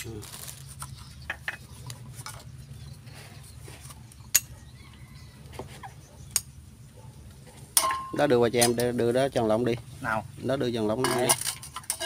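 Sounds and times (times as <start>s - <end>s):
metal spoon clinking on bowls: 7.8s - 9.0s, 10.9s - 12.0s.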